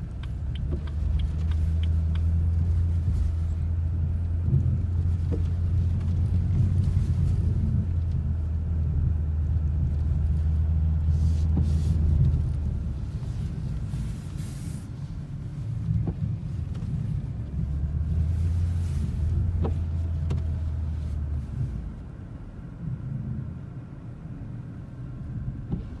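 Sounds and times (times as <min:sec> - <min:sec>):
car engine and tyres rumbling: 0:00.0 - 0:26.0
faint clicks: 0:00.1 - 0:02.4.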